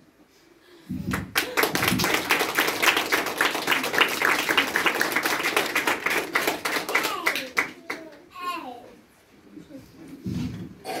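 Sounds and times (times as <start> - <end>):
audience applauding: 1.0 - 8.1.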